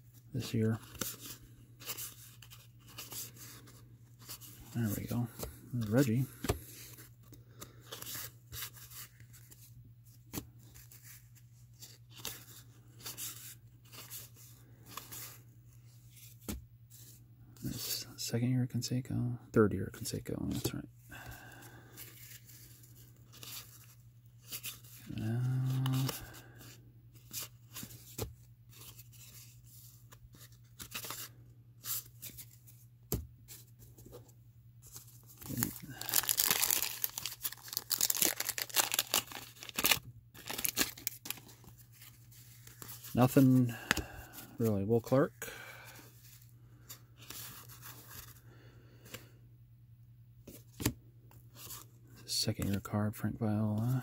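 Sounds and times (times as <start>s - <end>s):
cards rustling and flicking: 0.4s - 17.9s, 21.6s - 45.2s, 45.9s - 48.4s, 50.4s - 51.9s.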